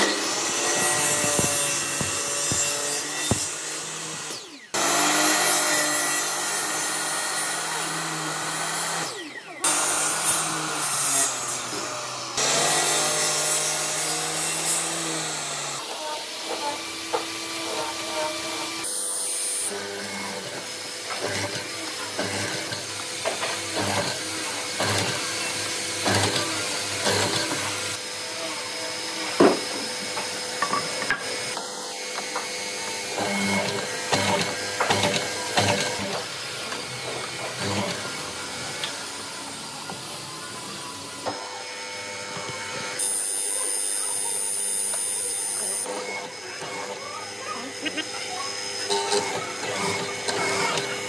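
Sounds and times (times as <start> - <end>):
power tool motor running: 0.0 - 51.0.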